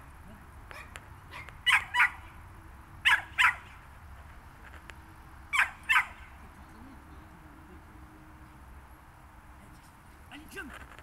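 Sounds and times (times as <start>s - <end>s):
small dog yapping: 0.7s - 2.3s, 3.0s - 3.8s, 5.5s - 6.3s.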